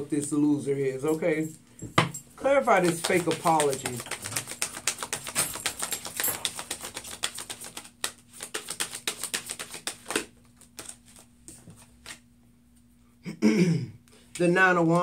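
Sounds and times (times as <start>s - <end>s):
cards being shuffled: 2.5s - 12.3s.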